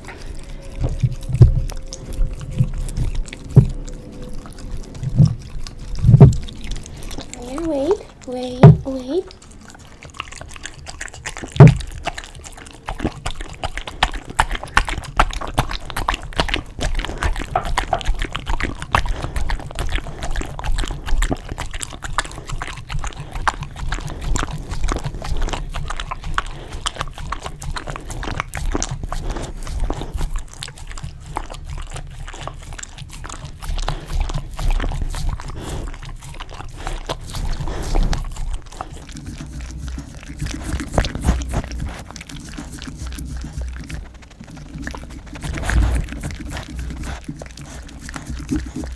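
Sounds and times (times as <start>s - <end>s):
dog licking with wet tongue smacks: 0.0s - 48.9s.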